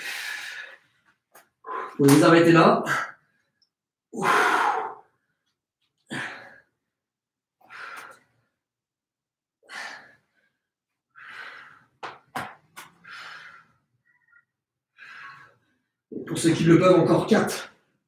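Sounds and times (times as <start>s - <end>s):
man breathing hard: 0.0s - 1.0s, 1.6s - 2.0s, 4.1s - 5.4s, 6.0s - 6.9s, 7.6s - 8.6s, 9.6s - 12.0s, 12.9s - 14.1s, 14.9s - 16.0s.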